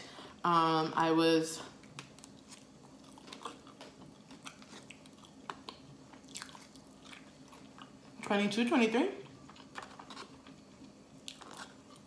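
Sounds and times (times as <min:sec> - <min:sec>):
chewing mouth sounds: 0:01.8 - 0:08.2, 0:09.2 - 0:12.0.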